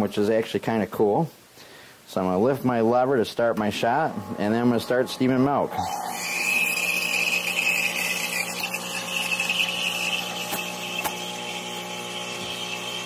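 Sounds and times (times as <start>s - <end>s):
espresso machine pump humming: 3.9s - 13.0s
steam wand hissing: 5.7s - 11.2s.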